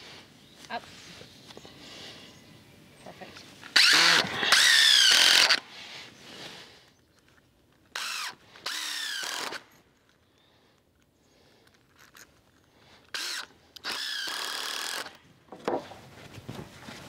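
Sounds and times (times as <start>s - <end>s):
impact driver driving screws: 3.8s - 5.6s, 7.9s - 9.6s, 13.1s - 15.2s.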